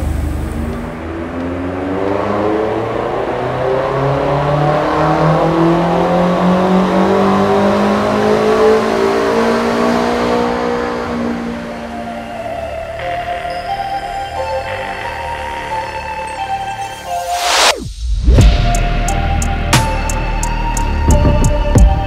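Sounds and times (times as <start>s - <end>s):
car engine at full throttle: 0.0s - 14.5s.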